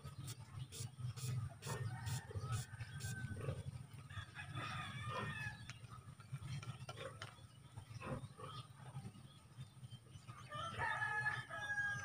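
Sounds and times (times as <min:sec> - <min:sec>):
rooster crowing: 0:01.8 - 0:05.6, 0:10.5 - 0:12.0.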